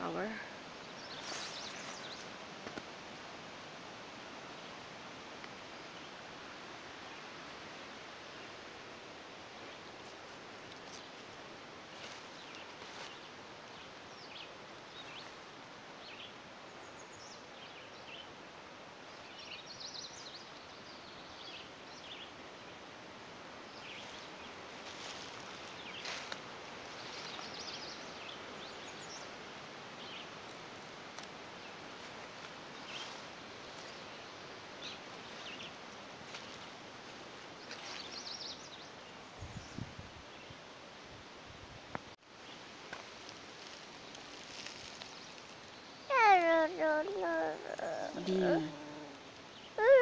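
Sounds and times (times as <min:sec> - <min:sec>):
small birds chirping: 0:00.0 - 0:02.4, 0:11.9 - 0:15.4, 0:23.6 - 0:30.7, 0:31.5 - 0:36.8, 0:37.5 - 0:40.7, 0:43.6 - 0:50.0
steady soft hiss: 0:00.0 - 0:49.8.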